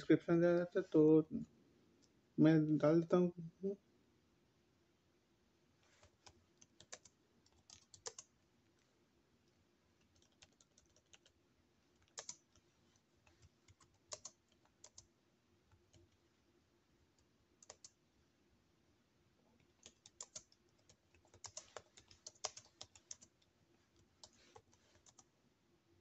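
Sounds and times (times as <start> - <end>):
computer keyboard typing: 5.9 - 8.3, 10.0 - 15.1, 15.7 - 16.2, 17.2 - 18.0, 19.6 - 25.3.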